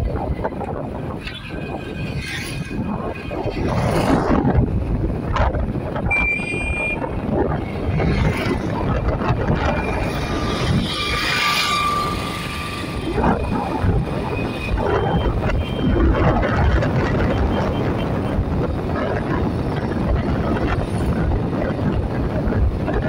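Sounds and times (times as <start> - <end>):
road noise rumble: 0.0 - 23.0
wind buffeting microphone: 0.0 - 23.0
high beep: 6.1 - 7.0.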